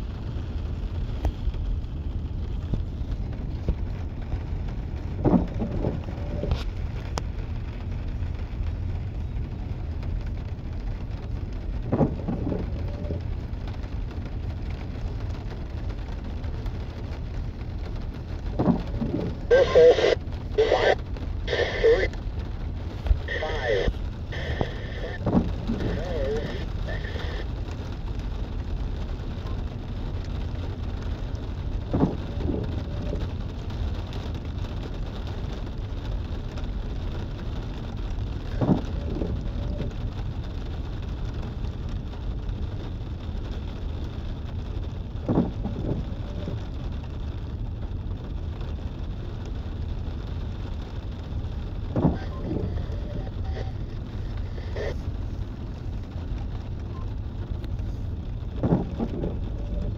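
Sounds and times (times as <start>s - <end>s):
windshield wipers knock and squeak: 5.1s - 6.6s, 11.8s - 13.2s, 18.5s - 22.0s, 23.1s - 27.4s, 31.9s - 33.3s, 38.5s - 40.0s, 45.2s - 46.6s, 51.8s - 55.0s, 58.5s - 59.9s.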